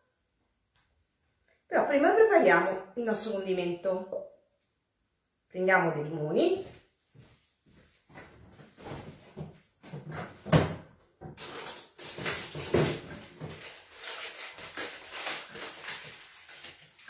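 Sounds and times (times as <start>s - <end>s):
knocks and bumps in a cupboard: 8.8s - 10.9s.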